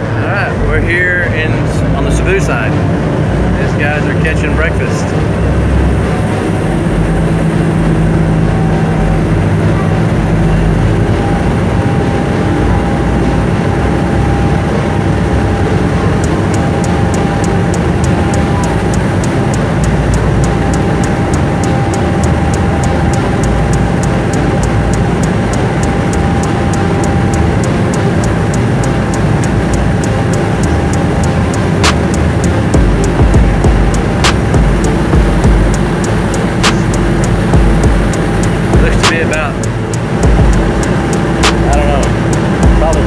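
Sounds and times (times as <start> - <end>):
ferry engine rumbling: 0.0 - 43.0
fast regular ticking: 10.1 - 43.0.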